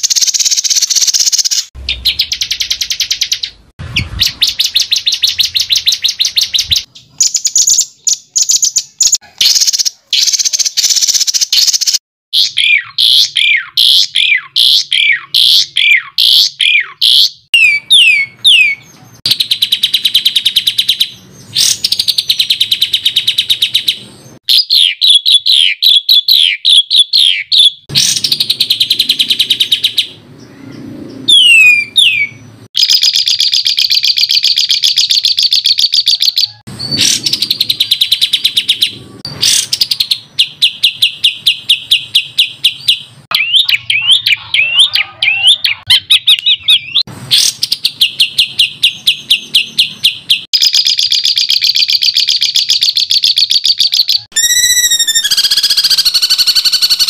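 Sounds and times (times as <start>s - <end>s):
bird rattling trills: 0.0s - 3.5s, 50.6s - 57.0s
bird twittering: 0.0s - 57.0s
quick downward whistles: 31.3s - 38.8s, 53.9s - 57.0s.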